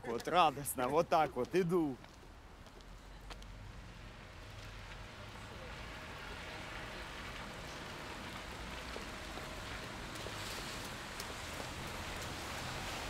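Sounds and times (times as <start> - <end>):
rain on wet pavement: 3.6 - 13.0.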